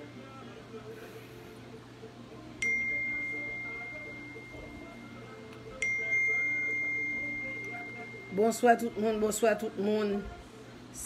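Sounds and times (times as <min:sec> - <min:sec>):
phone notification chime: 0:02.6 - 0:05.2, 0:05.8 - 0:09.3.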